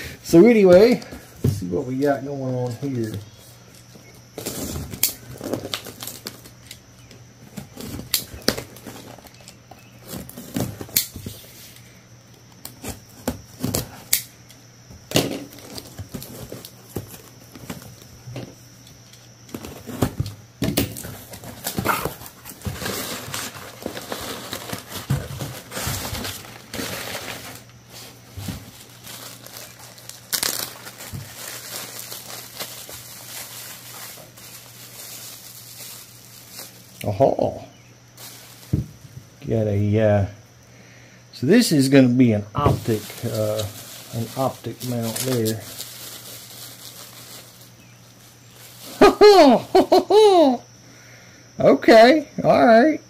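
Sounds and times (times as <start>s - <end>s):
packaging tearing and crinkling: 4.4s - 6.8s, 21.0s - 37.0s, 42.8s - 49.1s
rustling: 21.0s - 37.0s, 38.2s - 38.9s, 42.7s - 49.0s.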